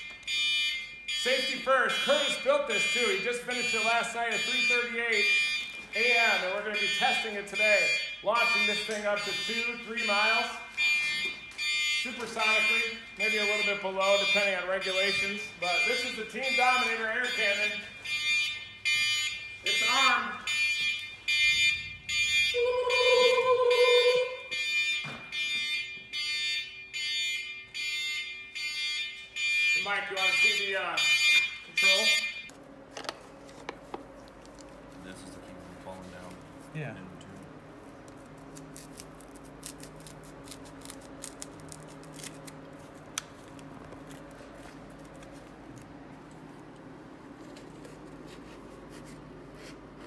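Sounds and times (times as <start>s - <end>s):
high electronic alarm beeping: 0.0s - 32.5s
steady low hum: 31.2s - 50.0s.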